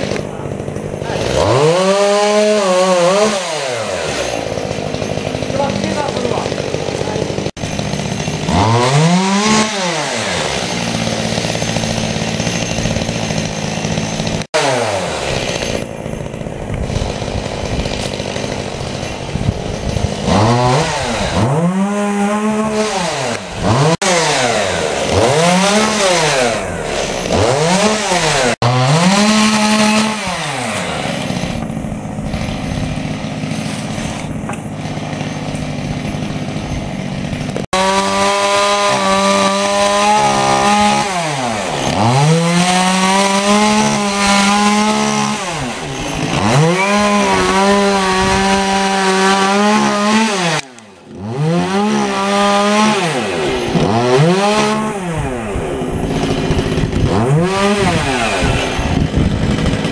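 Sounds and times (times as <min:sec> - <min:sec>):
chainsaw revving: 0:00.0 - 0:59.9.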